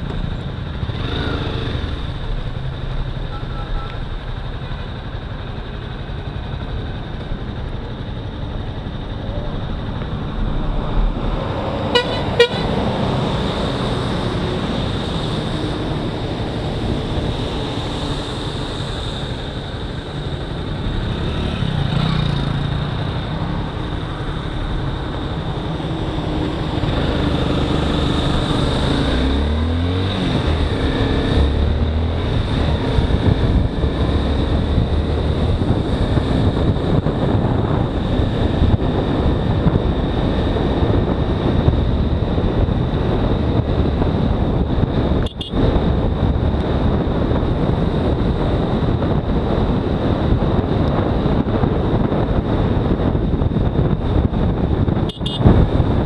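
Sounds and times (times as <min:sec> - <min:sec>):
tyres on wet road: 0:00.0 - 0:41.0
motorcycle engine: 0:00.0 - 0:56.0
wind noise: 0:00.0 - 0:56.0
vehicle horns tooting: 0:11.9 - 0:12.8, 0:45.2 - 0:45.6, 0:55.1 - 0:55.5.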